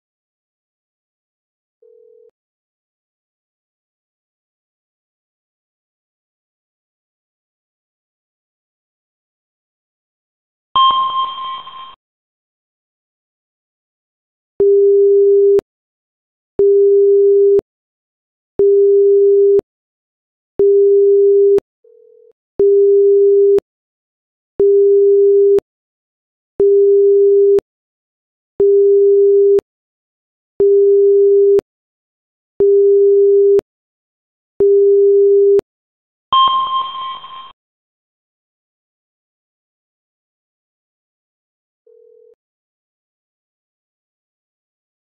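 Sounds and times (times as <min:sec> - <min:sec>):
bright chime: 0:36.4 - 0:37.5.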